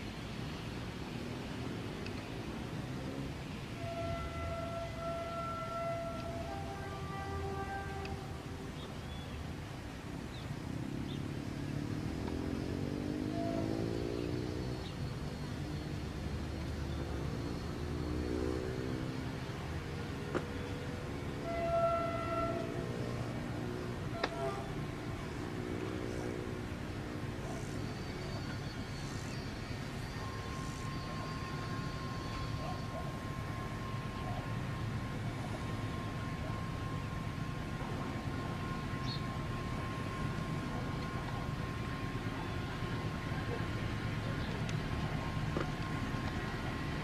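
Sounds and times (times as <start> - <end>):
diesel locomotive engine throttling up: 0.0 - 47.0
thin steady tone: 19.4 - 47.0.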